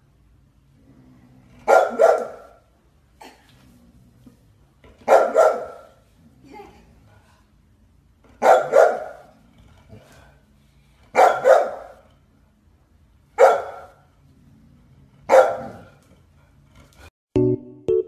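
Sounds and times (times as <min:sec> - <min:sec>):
dog barking: 0:01.6 - 0:02.6, 0:05.0 - 0:06.0, 0:08.4 - 0:09.3, 0:11.1 - 0:12.0, 0:13.4 - 0:14.0, 0:15.3 - 0:15.9.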